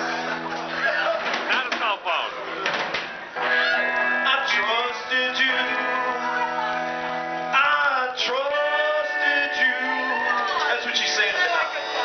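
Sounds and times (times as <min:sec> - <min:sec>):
electric guitars: 0:00.0 - 0:01.8, 0:02.4 - 0:12.0
drums: 0:00.0 - 0:12.0
person singing: 0:03.8 - 0:12.0.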